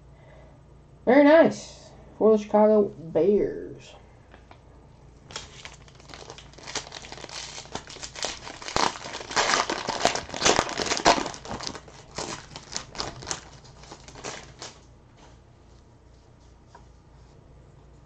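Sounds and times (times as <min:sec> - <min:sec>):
foil pack crinkling and tearing: 0:05.3 - 0:14.9.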